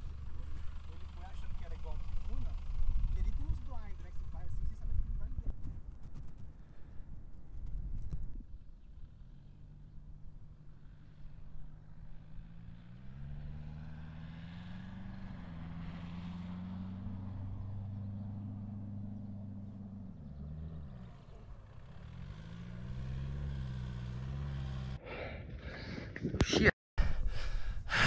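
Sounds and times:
car engine revving in sand: 0:08.9 - 0:25.3.

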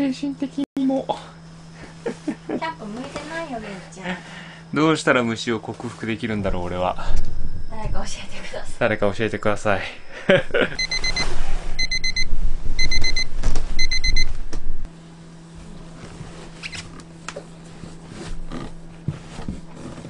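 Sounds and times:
alarm beeping: 0:08.8 - 0:14.4.

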